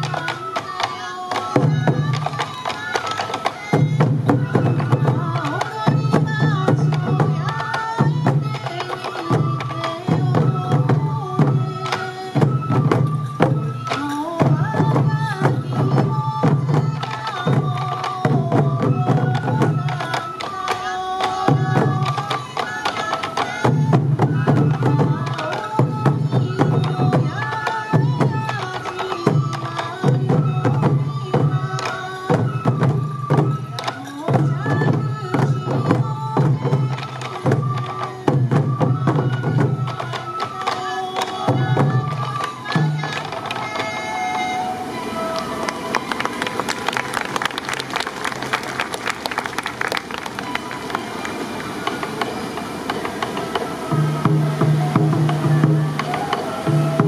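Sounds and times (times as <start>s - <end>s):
taiko drums beating: 0.0s - 44.4s, 45.2s - 57.0s
bamboo flutes playing a melody: 0.0s - 57.0s.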